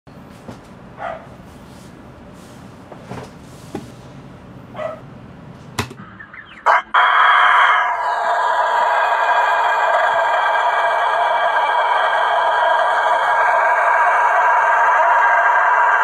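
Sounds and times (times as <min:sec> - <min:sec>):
rooster crowing: 0:06.6 - 0:16.0.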